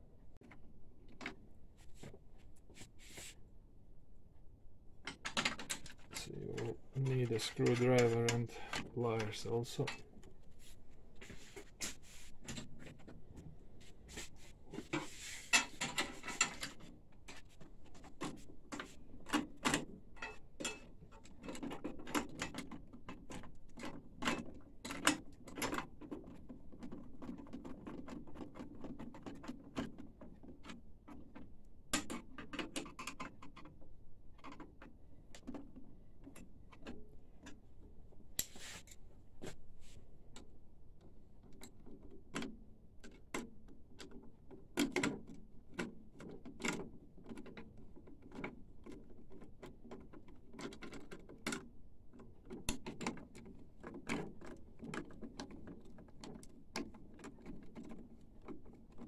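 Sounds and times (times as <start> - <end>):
short scrape: 38.5 - 38.9.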